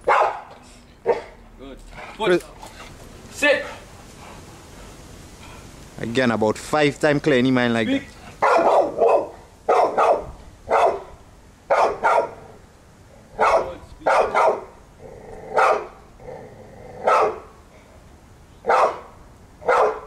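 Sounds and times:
dog barking: 0.0 - 1.4, 8.4 - 12.4, 13.4 - 14.8, 15.5 - 16.0, 17.0 - 17.5, 18.6 - 20.0.

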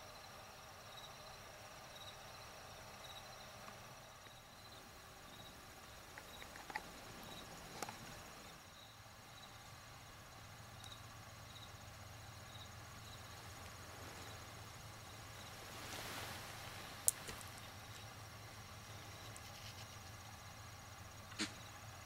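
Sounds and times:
insect chirp: 0.0 - 22.0
insect chorus trilling: 0.0 - 22.0
small clicks: 6.1 - 8.2.

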